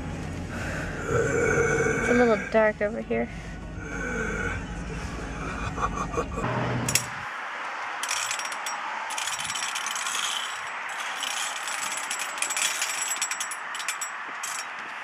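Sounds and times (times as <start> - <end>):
metal claws scraping on glass: 8.0 - 14.8.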